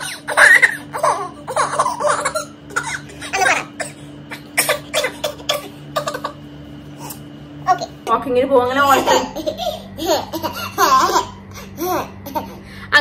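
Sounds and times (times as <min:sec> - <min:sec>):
toddler squealing and laughing: 0:00.0 - 0:05.4.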